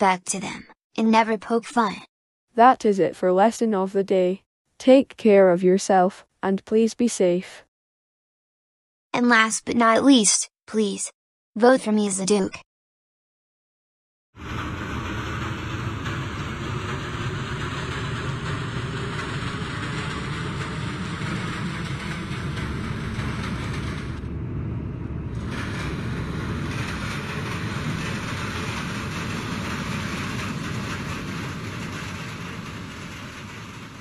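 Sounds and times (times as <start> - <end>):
subway train rumbling: 14.4 - 34.0.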